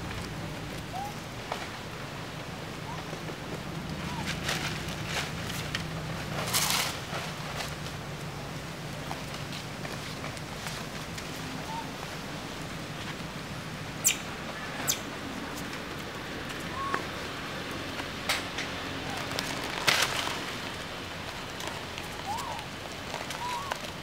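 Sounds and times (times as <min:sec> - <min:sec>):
steady background hiss: 0:00.0 - 0:24.0
sharp clicks and rustles: 0:03.0 - 0:08.3, 0:17.9 - 0:24.0
monkeys chirping: 0:14.0 - 0:15.0, 0:22.2 - 0:22.6.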